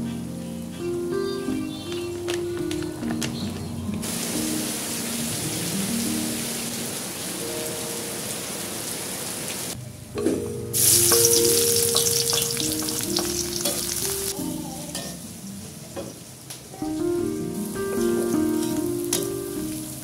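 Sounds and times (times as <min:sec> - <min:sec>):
soft background music: 0:00.0 - 0:08.4, 0:10.1 - 0:16.2, 0:16.8 - 0:20.0
rain pattering: 0:01.8 - 0:09.8, 0:10.8 - 0:14.4
shallots sizzling in hot oil: 0:04.0 - 0:07.0, 0:10.8 - 0:20.0.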